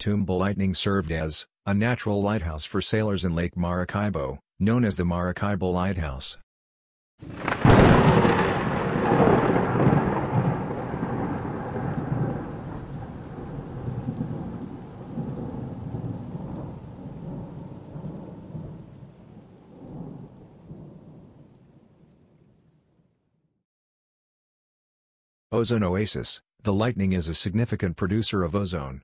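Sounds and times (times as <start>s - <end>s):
rain falling: 7.2s - 22.6s
thunder rumbling: 7.2s - 22.7s.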